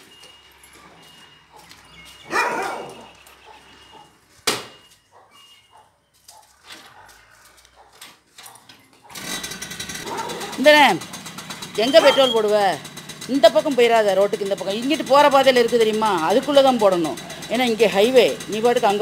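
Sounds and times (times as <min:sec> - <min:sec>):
dog barking: 0:01.5 - 0:04.2, 0:05.1 - 0:09.2, 0:10.0 - 0:10.6, 0:12.0 - 0:12.4.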